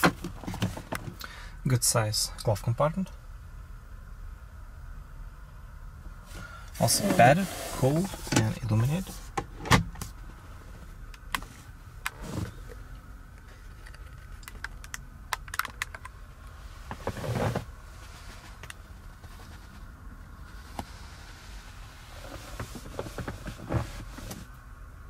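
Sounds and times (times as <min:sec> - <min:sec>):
low cabin hum: 0:00.0 - 0:25.0
glove compartment lid clicking shut: 0:09.4 - 0:10.1.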